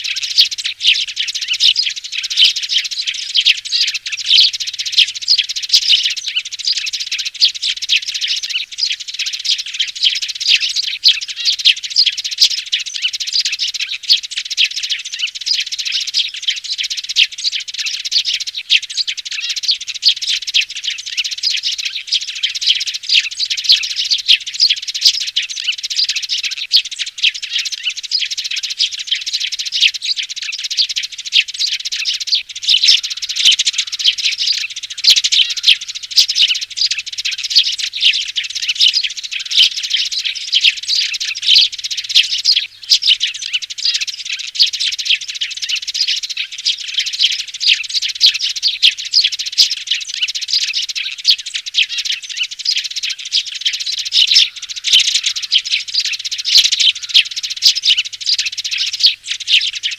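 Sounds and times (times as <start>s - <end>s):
young sparrows chirping: 0.0s - 59.9s.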